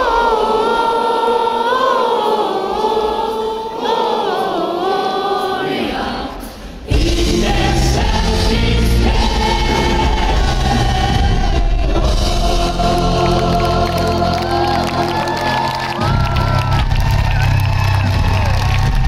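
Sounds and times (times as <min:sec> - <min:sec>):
voices singing in harmony: 0:00.0 - 0:19.0
full band with heavy bass: 0:06.9 - 0:19.0.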